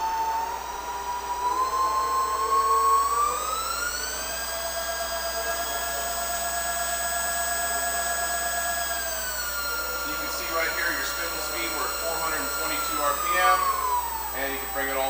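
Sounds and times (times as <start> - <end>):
milling machine spindle whine: 0.0 - 15.0.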